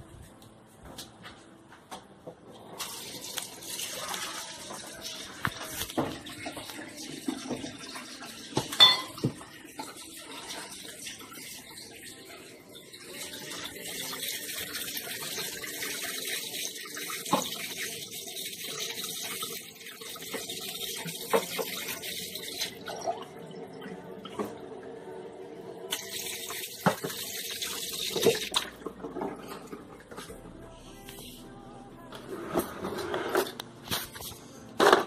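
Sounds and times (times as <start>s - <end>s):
water running from tap into sink: 2.8s - 30.2s.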